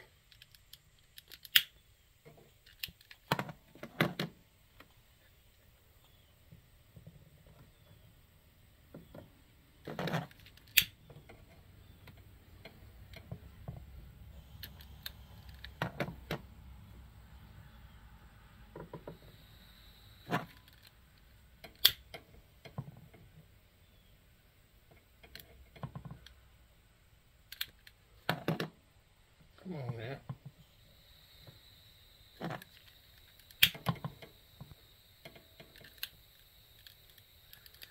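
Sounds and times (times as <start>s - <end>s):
lighter clicking: 21.7s - 22.0s.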